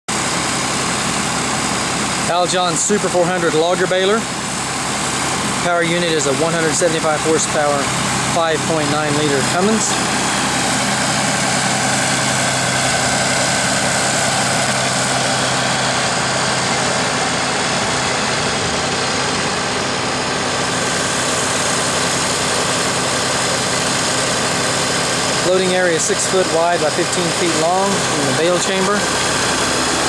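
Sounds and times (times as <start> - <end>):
diesel engine idling: 0.1 - 30.0.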